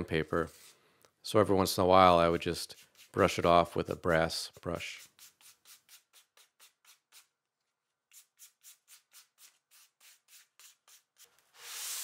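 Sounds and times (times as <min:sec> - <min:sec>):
brush scrubbing sanding disc: 0:01.8 - 0:07.3.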